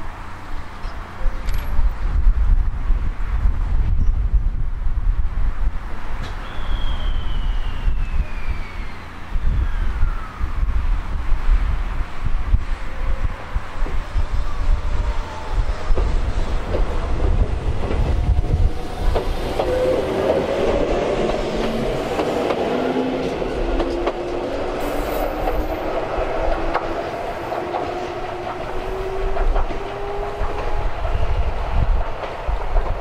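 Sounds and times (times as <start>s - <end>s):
low rumble: 10.7s - 22.3s.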